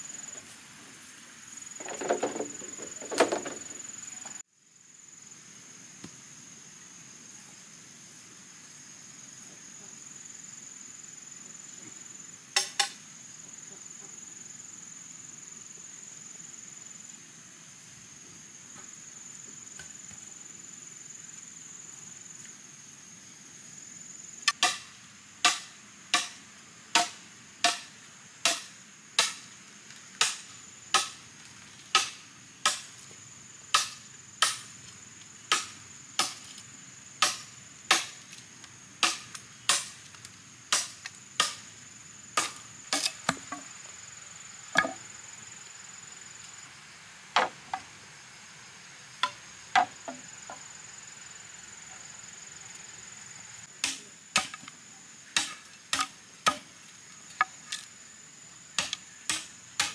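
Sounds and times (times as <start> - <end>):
hand tool striking evenly: 24.5 - 29.4, 30.2 - 31.2, 31.9 - 32.9, 33.7 - 34.7, 37.2 - 38.2, 42.4 - 43.6, 53.8 - 54.7, 55.4 - 56.7, 58.8 - 59.9.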